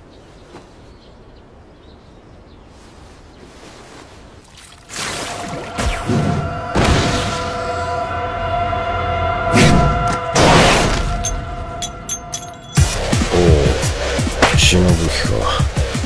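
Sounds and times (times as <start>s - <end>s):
tense sustained music chord: 5.3s - 14.4s.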